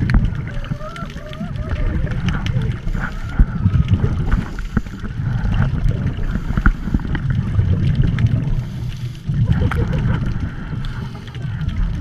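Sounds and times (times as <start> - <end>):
muffled underwater rumble: 0.0 - 12.0
regulator bubbles bubbling: 0.0 - 12.0.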